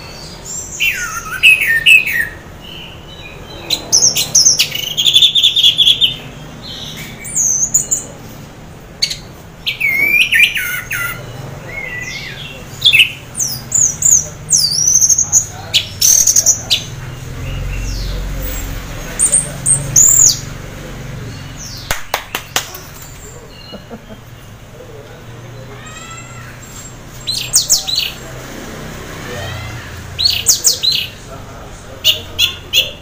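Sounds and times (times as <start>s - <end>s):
thrush singing whistled phrases: 0.8s - 2.4s.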